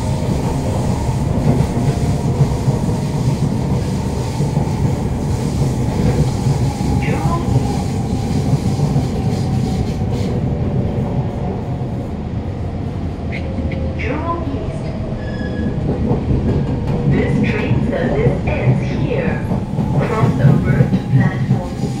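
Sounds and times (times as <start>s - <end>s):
train wheels rumbling on rails: 0.0s - 22.0s
wheel squeal: 15.2s - 15.8s.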